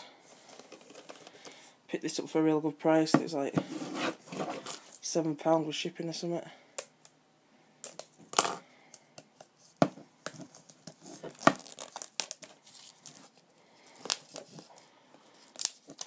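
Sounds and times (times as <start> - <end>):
plastic wrapping ripping and crinkling: 10.6 - 16.0.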